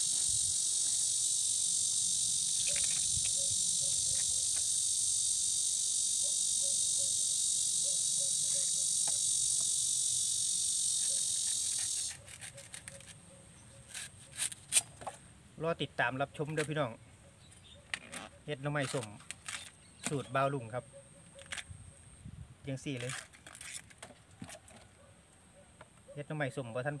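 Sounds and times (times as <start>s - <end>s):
insects chirring: 0.0s - 27.0s
knife clicking on bamboo: 11.0s - 13.2s.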